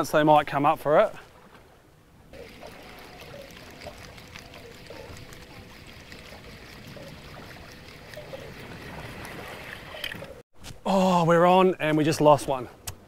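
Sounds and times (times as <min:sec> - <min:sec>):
water lapping against boat hull: 0:02.3 - 0:10.4.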